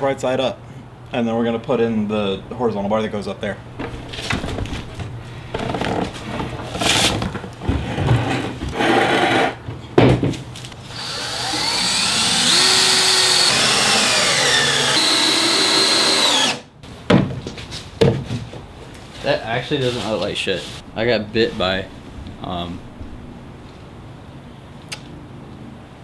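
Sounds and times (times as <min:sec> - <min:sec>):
cordless drill driving screws: 0:10.9 - 0:16.6.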